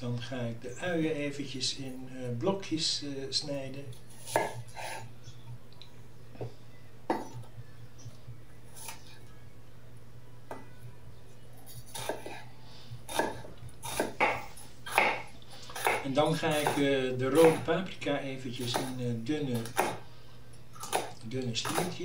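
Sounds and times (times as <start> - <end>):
knife cutting on wooden board: 4.2 - 5.0, 11.7 - 12.4, 13.1 - 16.8.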